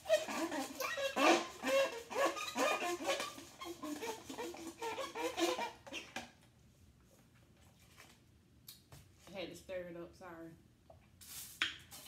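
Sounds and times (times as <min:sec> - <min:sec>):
plastic straw squeaking in lid: 0:00.0 - 0:06.3.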